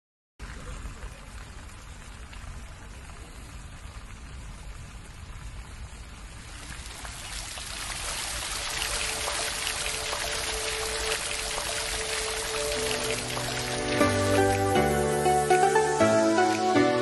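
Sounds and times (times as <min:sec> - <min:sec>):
fountain water splashing: 0:00.4 - 0:17.0
background music: 0:09.0 - 0:17.0.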